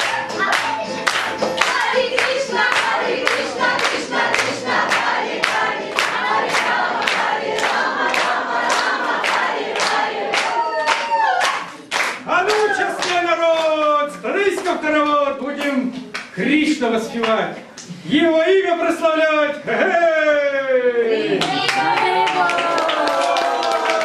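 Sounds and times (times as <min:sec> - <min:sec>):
group singing in chorus: 0:00.0 - 0:11.0
hands clapping in time: 0:00.0 - 0:13.9.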